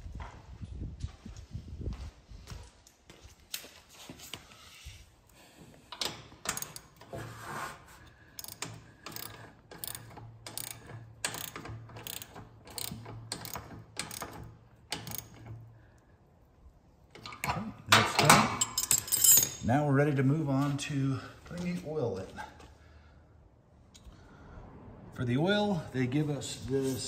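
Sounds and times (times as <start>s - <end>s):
ratchet wrench clicking: 6.0s - 7.0s, 8.4s - 15.6s.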